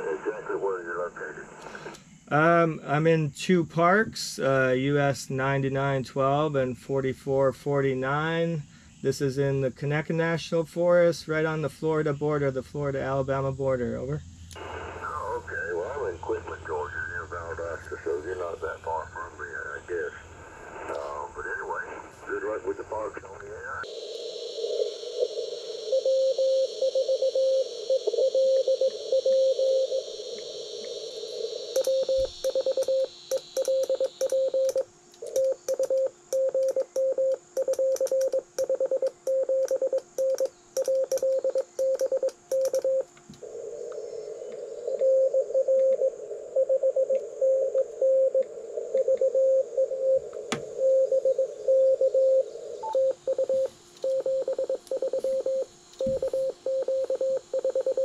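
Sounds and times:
radio receiver hiss: 0.0 - 5.5, 14.5 - 58.0
morse code tones: 25.2 - 30.2, 31.7 - 43.1, 50.8 - 58.0.

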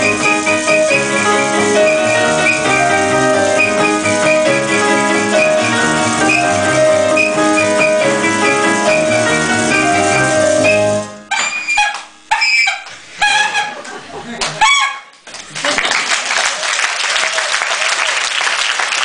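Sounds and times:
live band keyboard and bass: 0.0 - 12.2
toy horn honks: 0.0 - 13.8, 14.6 - 15.2
audience applause: 15.3 - 19.0.

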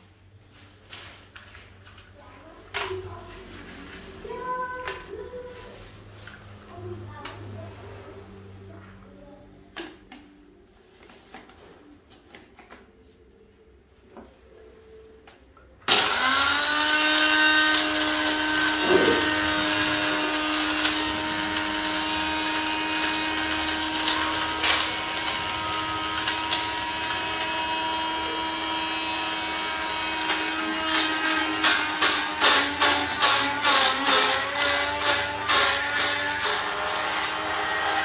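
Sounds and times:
blender motor whine: 15.9 - 38.0.

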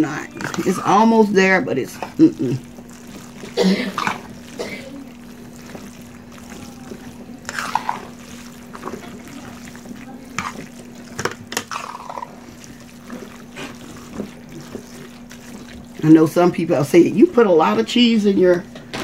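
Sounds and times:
pasta squelching while stirred: 0.0 - 18.9
steady low hum: 0.0 - 19.0.

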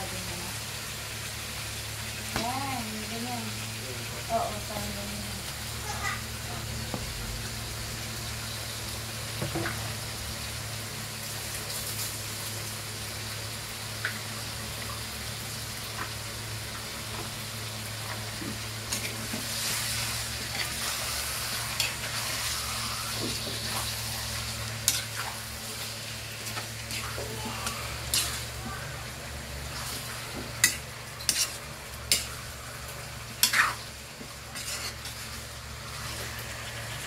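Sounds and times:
chicken sizzling in a wok: 0.0 - 37.0
metal spatula scraping and knocking pan: 30.3 - 32.3.

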